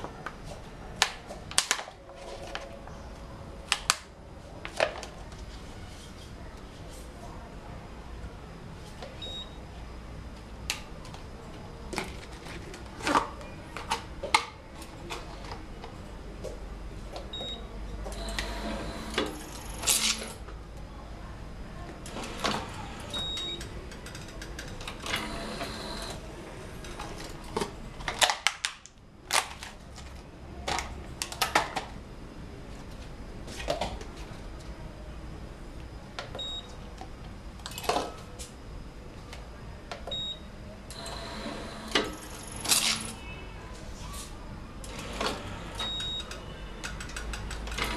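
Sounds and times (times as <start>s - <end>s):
cup sealing machine motor whirring: 18.1s - 20.4s, 22.1s - 23.3s, 24.8s - 26.2s, 40.9s - 43.2s, 44.8s - 45.9s
sharp mechanical clicks and clunks: 44.8s - 47.9s.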